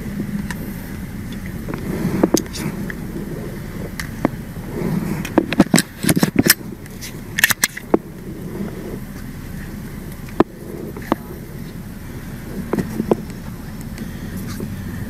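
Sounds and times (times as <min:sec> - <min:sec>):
clothing and gear rubbing: 0:04.7 - 0:05.6
sharp clicks and knocks: 0:05.2 - 0:08.1.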